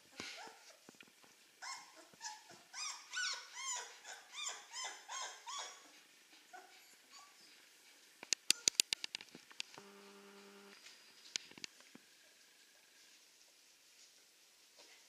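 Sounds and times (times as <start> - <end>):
puppy whining: 0.0 - 0.9, 1.6 - 7.7, 8.4 - 9.0.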